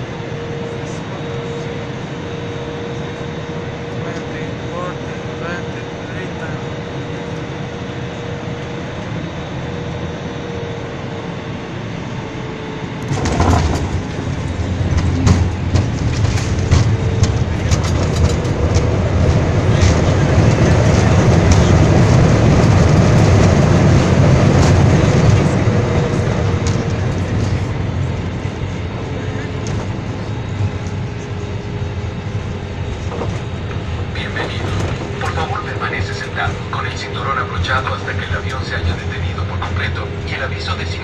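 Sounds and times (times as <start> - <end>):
jet engines roaring: 0.0 - 41.0
wheels rumbling on runway: 0.0 - 41.0
cabin hum: 13.0 - 41.0.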